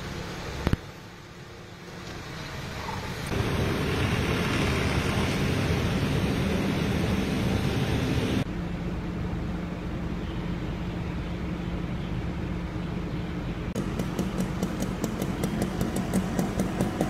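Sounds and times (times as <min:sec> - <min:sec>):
outdoor hiss: 0:00.0 - 0:08.4
low hum: 0:03.2 - 0:17.0.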